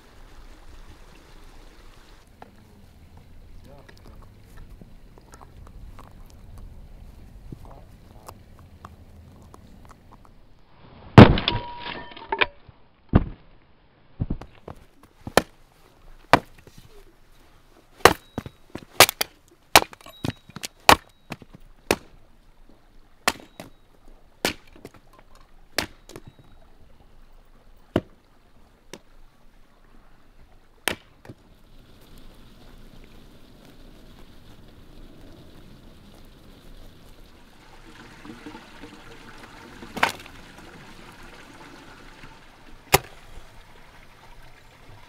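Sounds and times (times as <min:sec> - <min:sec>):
hatchet chopping wood: 0:15.3 - 0:15.5, 0:16.3 - 0:16.6, 0:18.0 - 0:22.1, 0:23.2 - 0:23.8, 0:24.4 - 0:25.0, 0:25.8 - 0:26.4, 0:27.9 - 0:28.2, 0:30.8 - 0:31.4, 0:42.9 - 0:43.2.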